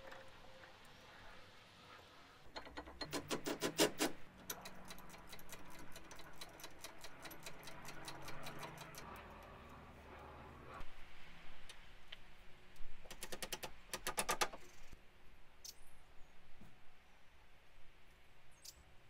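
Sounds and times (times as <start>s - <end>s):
hand ratchet clicking: 2.8s - 9.2s.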